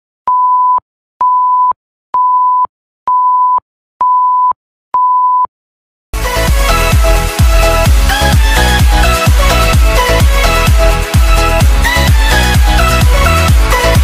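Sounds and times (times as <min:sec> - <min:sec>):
electronic dance music: 0:06.2 - 0:14.0.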